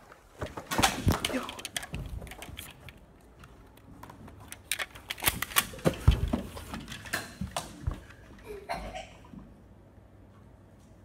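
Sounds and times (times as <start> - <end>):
sharp plastic clicks and knocks: 0.4 - 8.2.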